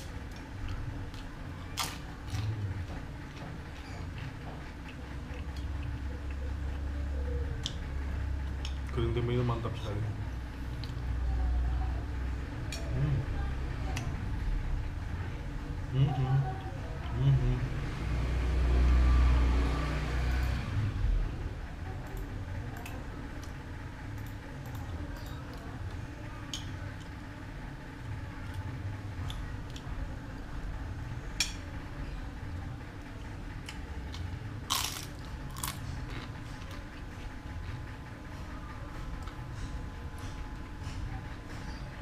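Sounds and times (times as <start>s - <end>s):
person chewing crunchy food: 0.3s - 6.8s, 33.6s - 37.1s.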